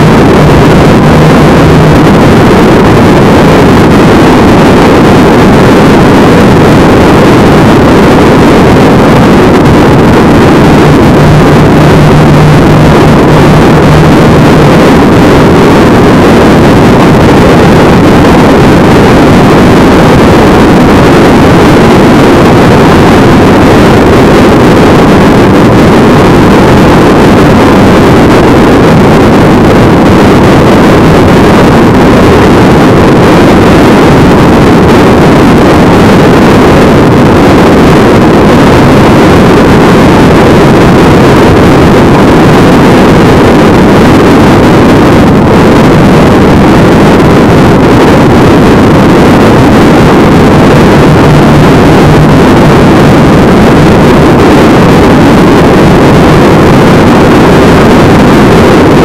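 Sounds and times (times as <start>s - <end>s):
engine and road noise: 0.0s - 7.8s, 8.4s - 23.8s
wind rushing on microphone: 0.0s - 59.0s.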